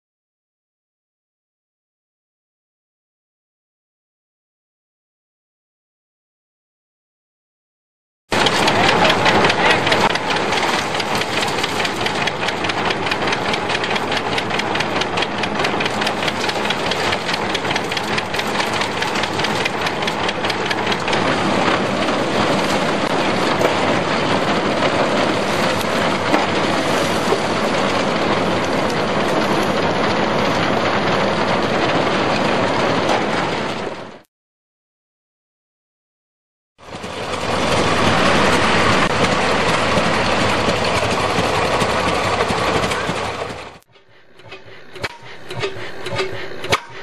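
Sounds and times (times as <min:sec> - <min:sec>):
corn shredder rattling: 0:08.3 - 0:34.1, 0:36.8 - 0:43.8.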